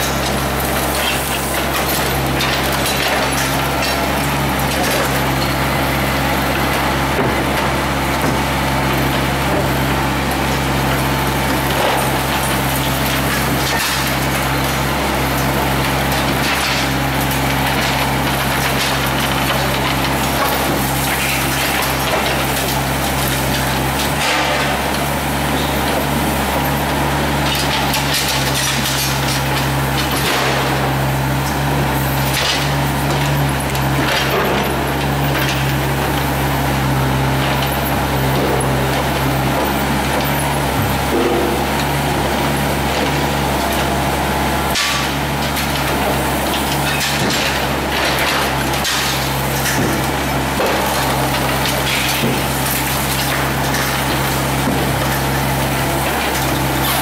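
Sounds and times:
excavator diesel engine humming: 0.0s - 57.0s
hydraulic shear crunching concrete: 0.0s - 57.0s.

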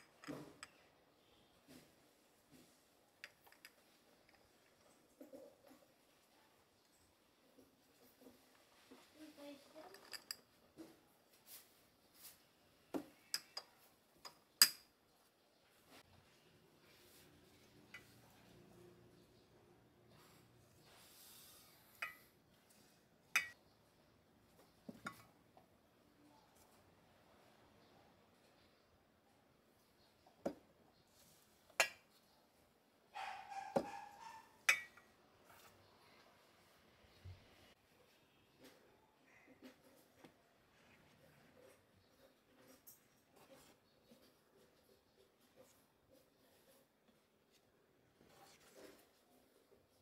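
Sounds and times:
glass jars clinking: 9.8s - 10.6s, 23.4s - 23.6s, 33.8s - 35.0s
soft brushing sounds: 10.8s - 12.8s, 15.6s - 18.7s, 20.1s - 22.0s.

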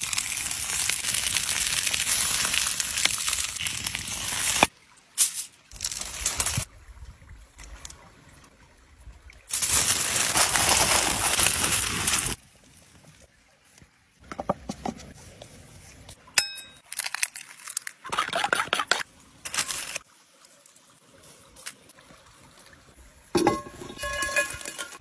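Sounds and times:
sharp ringing clink: 16.4s - 16.8s
cast-iron pan clattering: 23.4s - 25.0s.

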